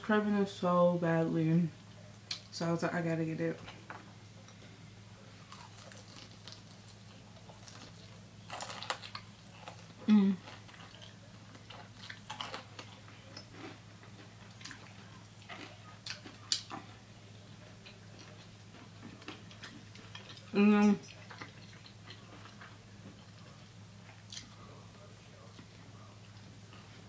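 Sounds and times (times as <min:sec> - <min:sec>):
steady low hum: 0:00.0 - 0:27.0
crunchy chewing: 0:05.4 - 0:24.7.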